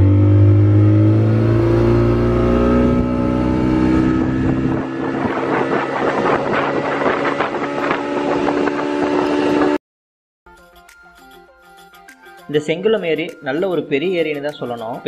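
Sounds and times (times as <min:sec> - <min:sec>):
speedboat motor running: 0:00.0 - 0:09.8
rough rushing noise: 0:01.2 - 0:09.8.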